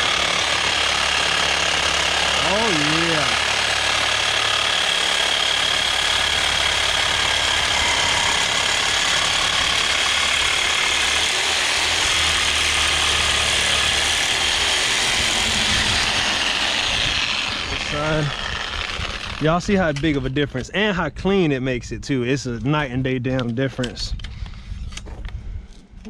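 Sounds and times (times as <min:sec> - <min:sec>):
reciprocating saw cutting metal pipe: 0:00.0 - 0:20.2.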